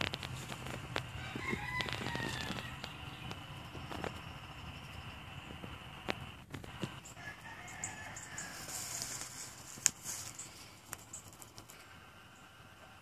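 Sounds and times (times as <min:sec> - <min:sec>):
rooster crowing: 0:01.0 - 0:03.3, 0:07.0 - 0:09.4
sharp clicks: 0:09.0 - 0:11.8.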